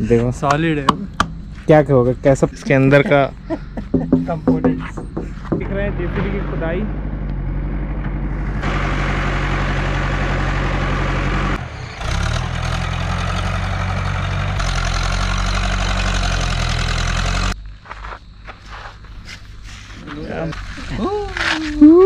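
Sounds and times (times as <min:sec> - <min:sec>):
diesel engine running: 0:00.0 - 0:17.6.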